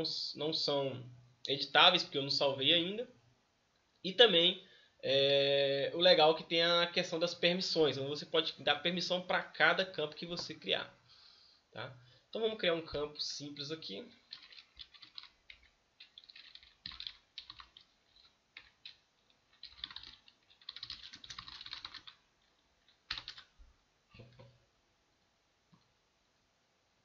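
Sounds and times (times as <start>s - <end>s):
computer keyboard typing: 14.2s - 23.5s.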